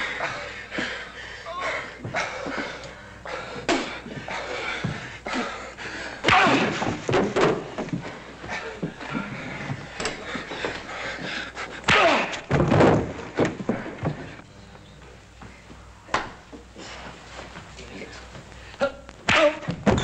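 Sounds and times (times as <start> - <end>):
men grunting: 0.0 - 7.0, 8.4 - 12.5
bodies slamming against wooden bar: 6.2 - 8.0, 11.9 - 14.3.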